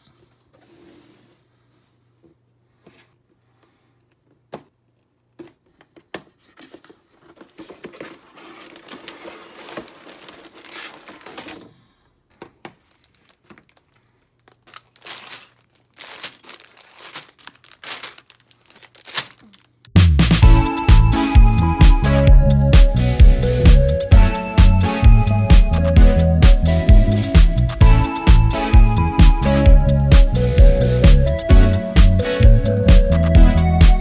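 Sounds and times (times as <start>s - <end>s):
plastic bags crinkling: 7.2s - 11.8s, 12.7s - 20.0s
loud music: 20.0s - 34.0s.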